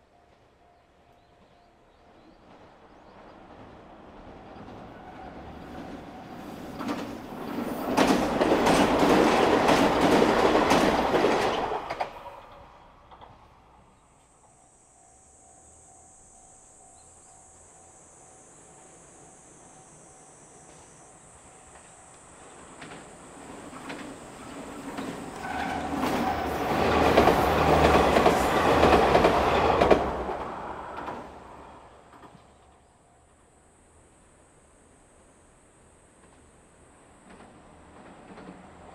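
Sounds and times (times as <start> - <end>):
diesel train passing: 0.0 - 38.9
wheels clacking over rail joints: 4.6 - 13.7, 21.7 - 31.4, 37.2 - 38.9
insects buzzing: 13.7 - 38.9.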